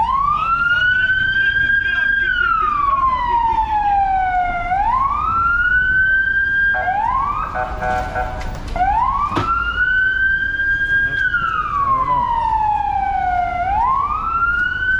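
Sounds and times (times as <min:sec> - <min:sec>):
ambulance siren wailing: 0:00.0 - 0:14.9
car horn: 0:06.8 - 0:08.8.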